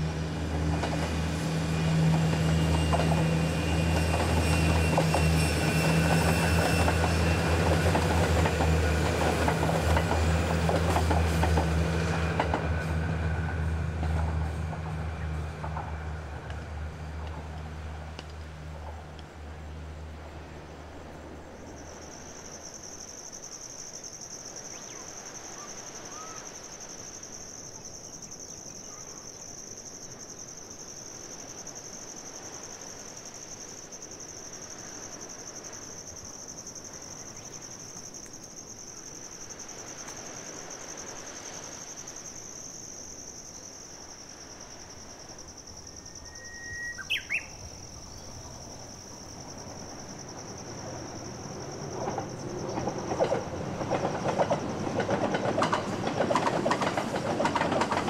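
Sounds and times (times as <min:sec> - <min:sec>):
outdoor background noise: 0:00.0 - 0:58.0
high-pitched insect trill: 0:01.0 - 0:13.8, 0:21.5 - 0:58.0
bird chirping sharply: 0:46.2 - 0:47.6.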